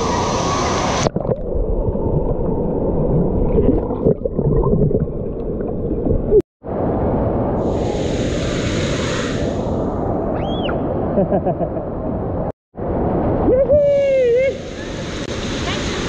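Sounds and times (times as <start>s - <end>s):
muffled rushing and gurgling water: 12.0s - 16.0s.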